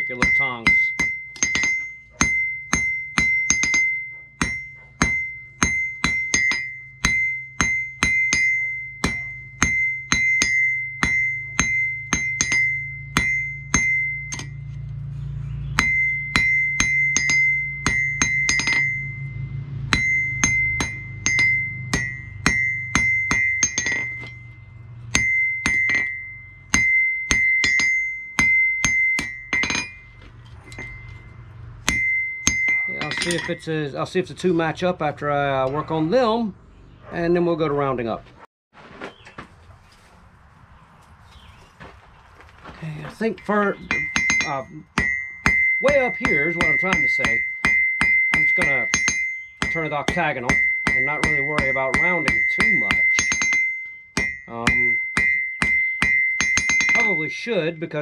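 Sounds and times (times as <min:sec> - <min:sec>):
hammer striking steel on anvil: 0:00.0 - 0:33.7, 0:43.4 - 0:58.0
low steady hum: 0:00.0 - 0:37.9.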